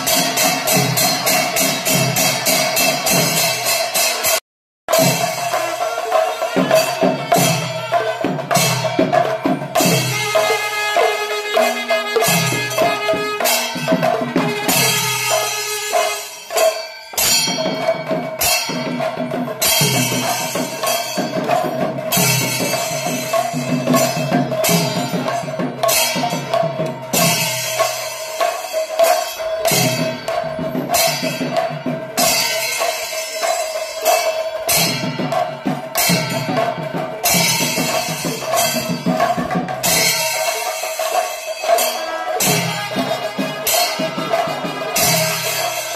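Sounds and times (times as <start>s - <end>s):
drums and cymbals beating: 0.0s - 45.9s
held wind instrument note: 9.8s - 16.8s.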